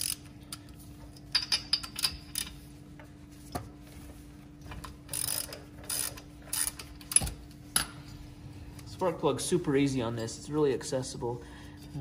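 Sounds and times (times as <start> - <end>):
ratchet wrench clicking: 0.0 - 0.7, 5.1 - 7.4.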